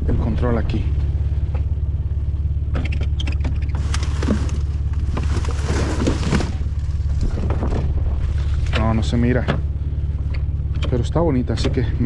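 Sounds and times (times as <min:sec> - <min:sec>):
low rumble: 0:00.0 - 0:12.0
plastic bags rustling: 0:03.8 - 0:07.5.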